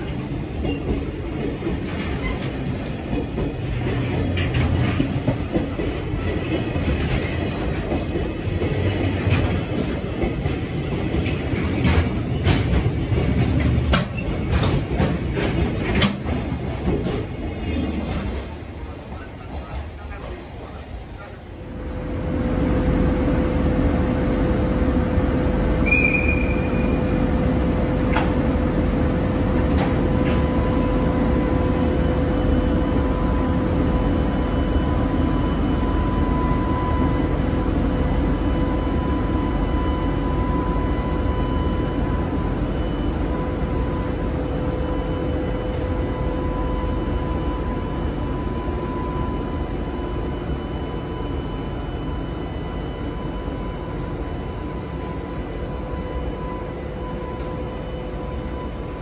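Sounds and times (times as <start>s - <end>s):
locomotive whine: 0.0s - 59.0s
train wheels rumbling: 0.0s - 59.0s
short squeal: 25.8s - 27.2s.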